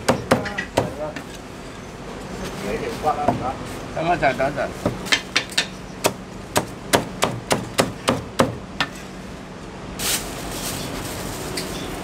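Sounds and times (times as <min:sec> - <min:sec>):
cleaver chopping on wooden block: 0:00.0 - 0:01.0, 0:04.9 - 0:08.9.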